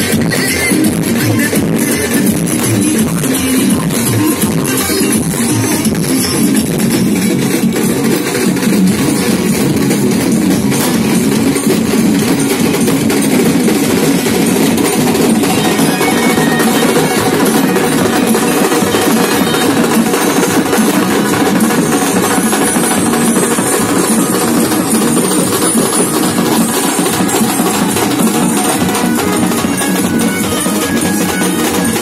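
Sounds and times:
large drums beating: 0.0s - 32.0s
wedding band playing procession music: 0.0s - 32.0s.

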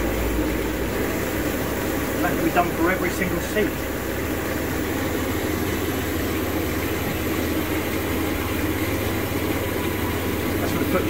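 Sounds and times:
rush of churning water: 0.0s - 11.0s
water pumps humming: 0.0s - 11.0s.

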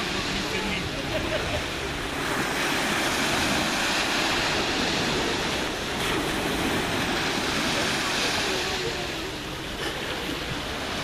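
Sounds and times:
sea waves washing on pebbles: 0.0s - 11.0s
wind rumbling on microphone: 0.0s - 11.0s.

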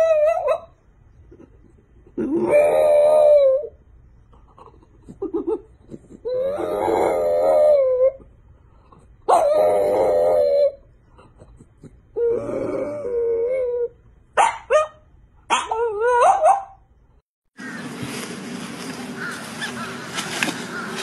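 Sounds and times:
dog howling: 0.0s - 0.7s, 2.3s - 3.8s, 6.3s - 8.2s, 9.3s - 10.8s.

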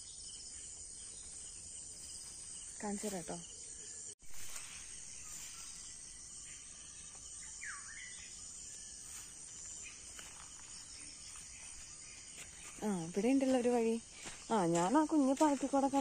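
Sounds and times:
crickets chirping: 0.0s - 16.0s
bird chirp: 3.5s - 14.9s.

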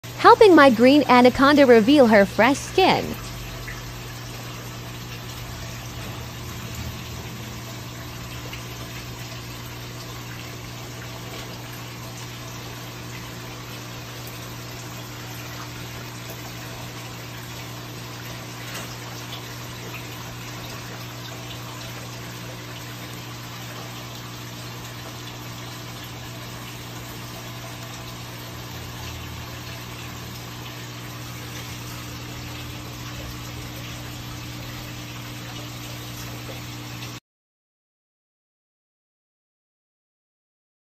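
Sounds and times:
low machine hum: 0.1s - 10.9s.

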